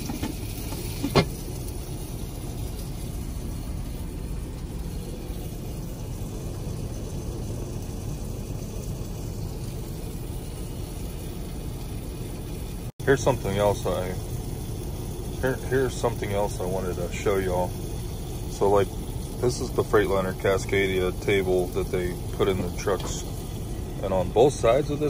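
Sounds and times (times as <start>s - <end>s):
diesel engine idling: 0.0s - 25.0s.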